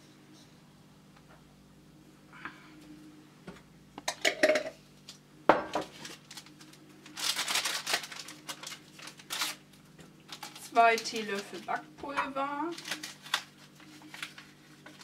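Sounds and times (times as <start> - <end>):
paper packet rustling: 5.8 - 11.9, 12.6 - 15.0.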